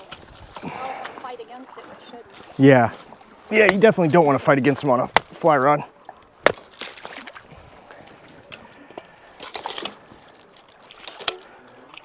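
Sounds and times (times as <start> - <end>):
river water lapping on gravel: 0.0 - 12.0.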